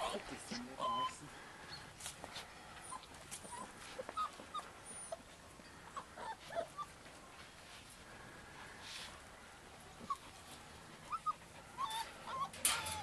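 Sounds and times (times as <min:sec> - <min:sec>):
puppies whimpering and squeaking: 0:00.5 - 0:01.9, 0:02.8 - 0:07.0, 0:11.0 - 0:13.0.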